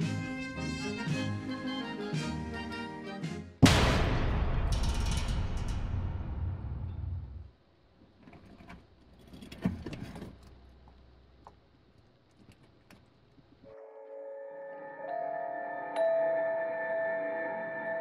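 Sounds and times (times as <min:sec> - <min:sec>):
rustling and clicks: 0:08.2 - 0:13.6.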